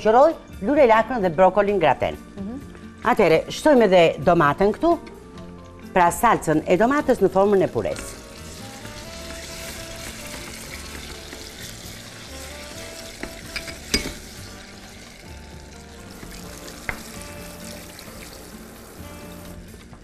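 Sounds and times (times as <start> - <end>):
sauce sizzling in frying pan: 6.5 - 20.0.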